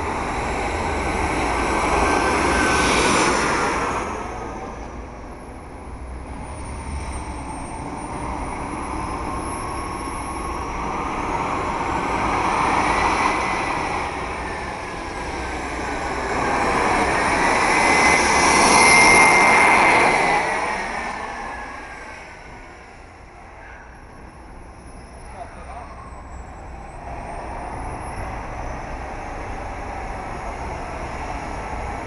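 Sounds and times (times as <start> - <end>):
model jet turbine whine: 0.0 - 23.4.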